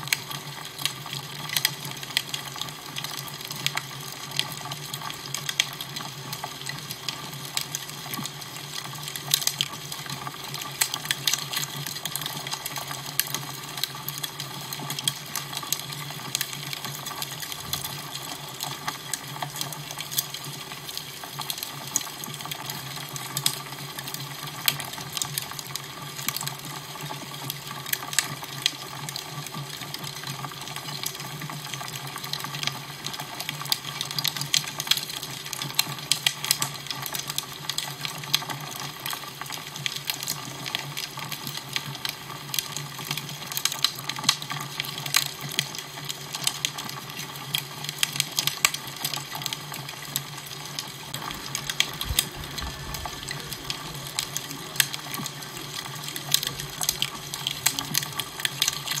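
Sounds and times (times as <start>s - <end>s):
fire crackling: 6.6s - 27.0s, 39.0s - 59.0s
low hum: 51.2s - 54.8s.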